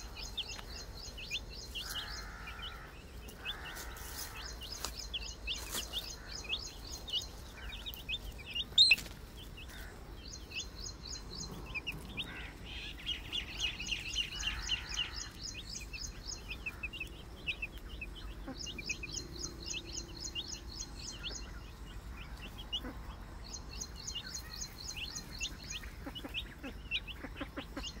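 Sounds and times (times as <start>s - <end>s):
baby chicks peeping: 0.0s - 28.0s
rapid high-pitched chirping: 4.1s - 9.6s, 13.0s - 21.5s.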